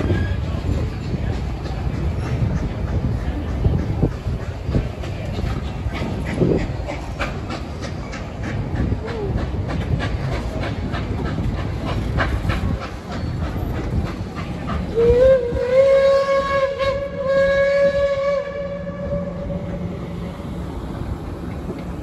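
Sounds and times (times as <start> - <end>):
train wheels clicking over rail joints: 0.0 - 18.6, 19.4 - 22.0
steam whistle blast: 15.0 - 19.6.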